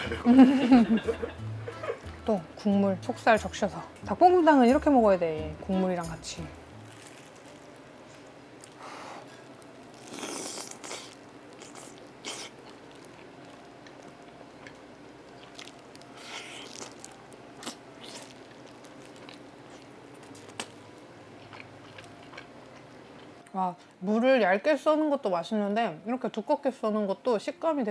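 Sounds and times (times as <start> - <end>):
biting and chewing: 8.6 - 20.8, 21.4 - 23.3
wet mouth sounds: 10.0 - 12.8.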